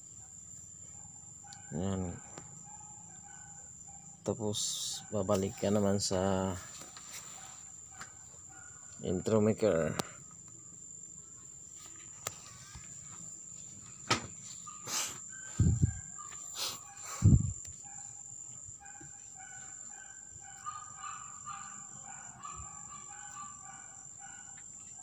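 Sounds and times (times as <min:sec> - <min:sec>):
high-pitched insect drone: 0:11.3 - 0:18.2.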